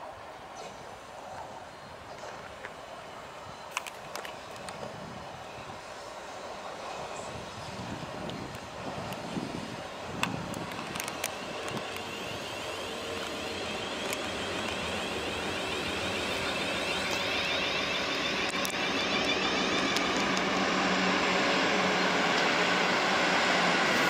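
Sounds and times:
wheels rumbling on rails: 0.7 - 24.0
train traction motors whining: 5.6 - 24.0.

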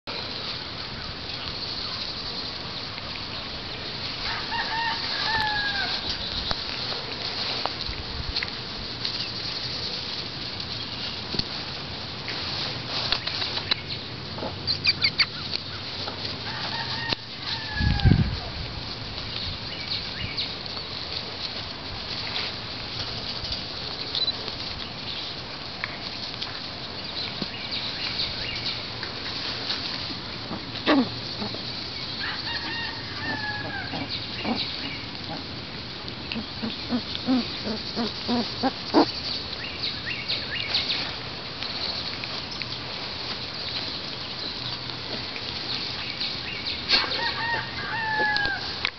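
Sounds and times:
puppies scuffling on grass: 0.0 - 48.9
steady outdoor hiss: 0.0 - 48.9
puppies squeaking: 14.6 - 15.4, 36.3 - 39.2.

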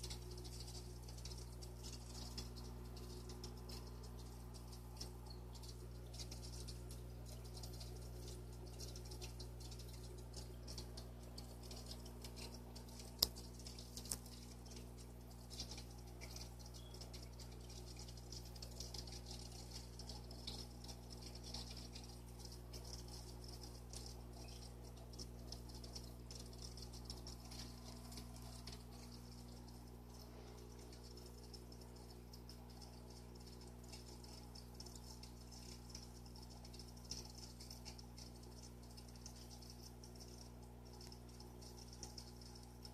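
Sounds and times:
aquarium low hum: 0.0 - 42.9
water fizzing: 0.0 - 42.9.

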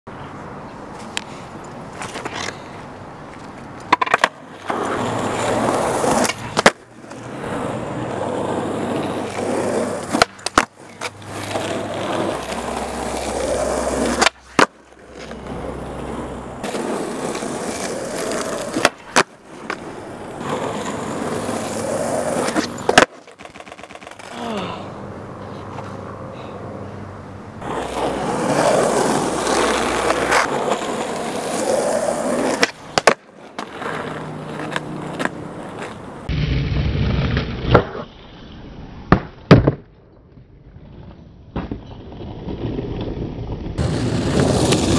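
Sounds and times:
skateboard wheels rolling on asphalt: 0.2 - 44.9
skateboard landing clack: 3.8 - 7.3, 9.3 - 15.6, 16.6 - 24.3, 27.6 - 38.1, 39.0 - 44.9
skateboard tail pop: 3.9 - 5.0, 10.1 - 11.2, 14.1 - 15.4, 22.4 - 24.3, 32.5 - 33.7, 36.3 - 38.1, 39.1 - 40.5.

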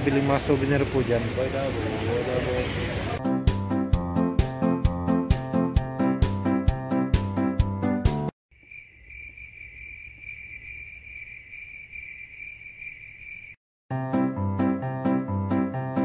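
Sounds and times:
crickets trilling: 8.5 - 13.6.

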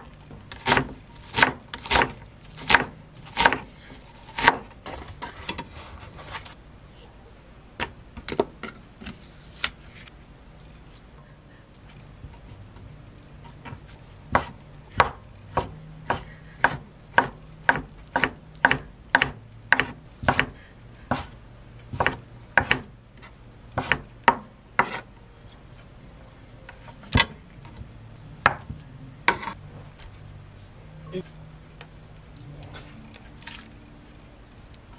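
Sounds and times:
knife chopping on wooden board: 0.5 - 3.7, 4.3 - 4.7, 13.6 - 21.3, 21.9 - 22.9, 23.8 - 25.0.

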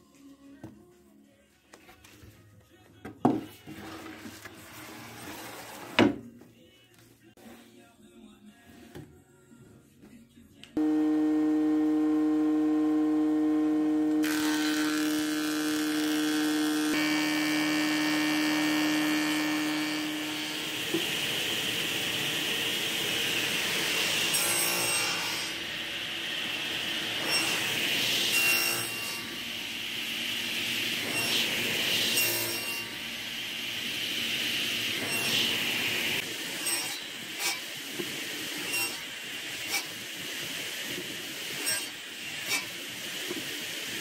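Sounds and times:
machine hum: 10.8 - 24.4
table saw cutting wood: 10.8 - 40.0, 40.8 - 44.0.

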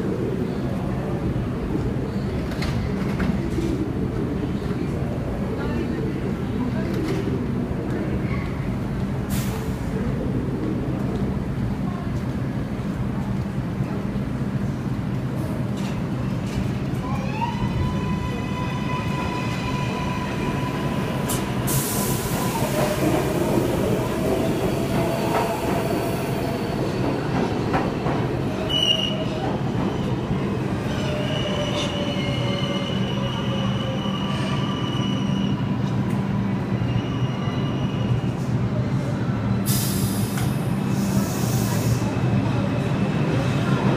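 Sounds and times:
train cars rumbling: 0.0 - 43.9
hiss: 21.3 - 23.1, 39.7 - 42.1
wheels squealing on rails: 28.5 - 38.5.

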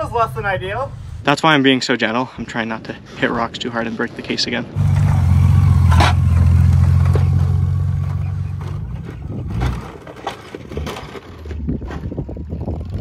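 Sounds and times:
motorcycle engine at low throttle: 4.7 - 10.3, 10.9 - 13.0.

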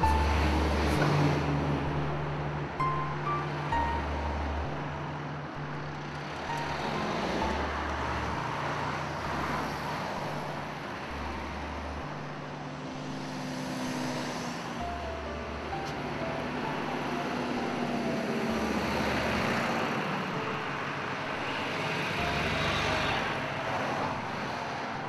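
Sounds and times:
cars driving past: 0.0 - 25.0
low held music notes: 14.8 - 25.0.

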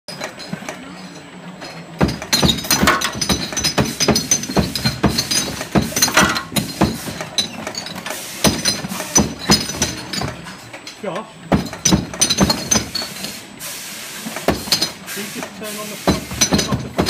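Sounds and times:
glass bottles clinking: 0.1 - 13.5, 14.2 - 17.0.

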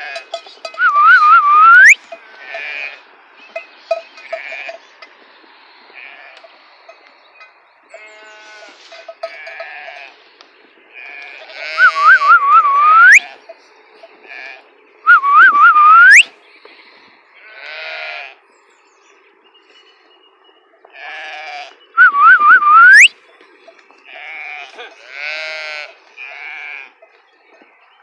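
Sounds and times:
sheep and lambs bleating: 0.0 - 0.4, 2.0 - 3.1, 4.2 - 4.9, 5.8 - 6.6, 7.9 - 10.2, 10.9 - 15.8, 17.4 - 18.4, 20.9 - 22.7, 24.0 - 27.1
person whistling: 0.8 - 2.0, 11.8 - 13.2, 15.1 - 16.3, 22.0 - 23.1.

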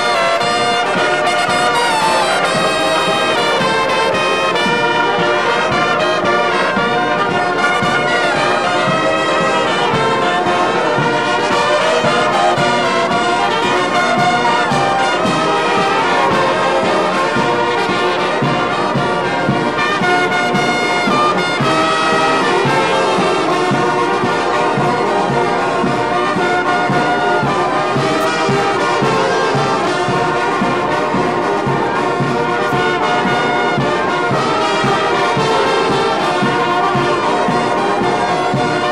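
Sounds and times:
brass band playing: 0.0 - 38.9.

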